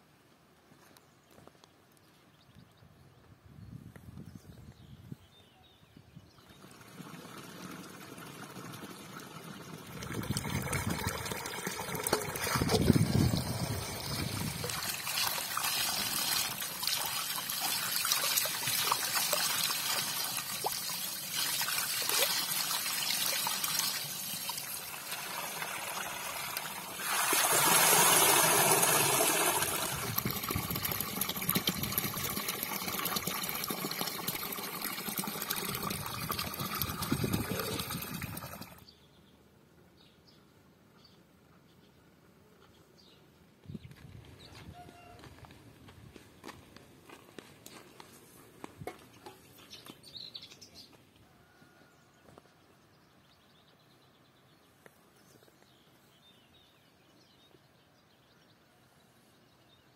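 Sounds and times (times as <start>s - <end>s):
water running from a pipe: 6.5s - 38.8s.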